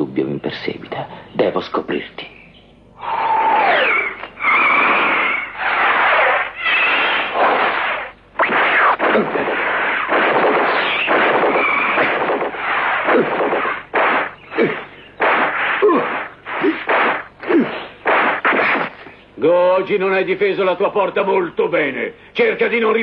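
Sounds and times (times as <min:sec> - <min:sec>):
short falling whistle: 0:03.3 - 0:07.4
cartoon whooshes: 0:03.4 - 0:19.0.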